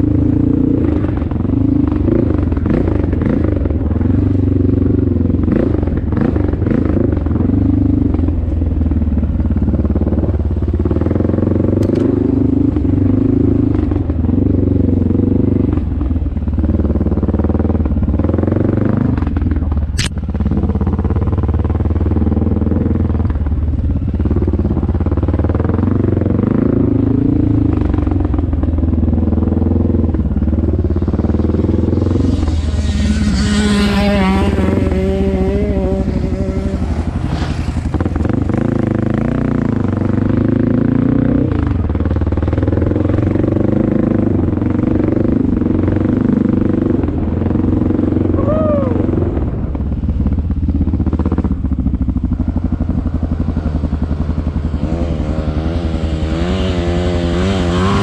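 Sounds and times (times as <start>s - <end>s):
sharp click: 11.8s - 12.1s, 20.0s - 20.2s
higher wavering engine: 23.7s - 58.0s
dirt bike engine revving: 30.9s - 41.8s, 42.4s - 58.0s.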